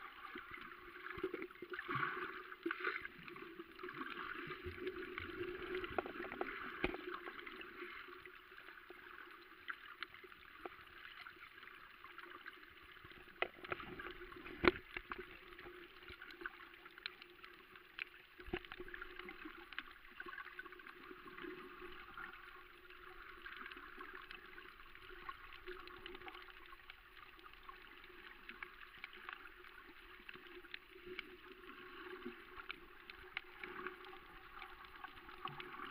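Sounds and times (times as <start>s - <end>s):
underwater clicks: 5.6s - 7.1s, 13.1s - 15.3s.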